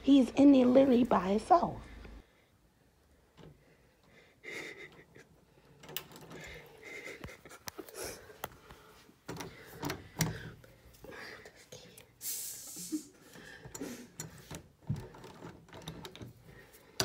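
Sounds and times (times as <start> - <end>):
muffled heavy breathing and gasping: 6.3 - 14.2.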